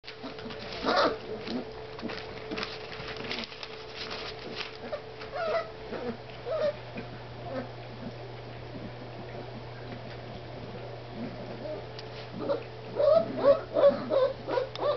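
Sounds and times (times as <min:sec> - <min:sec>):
newspaper crinkling under paws: 0:00.0 - 0:05.6
puppies yipping and squeaking: 0:00.2 - 0:01.6, 0:04.8 - 0:06.8, 0:12.4 - 0:14.9.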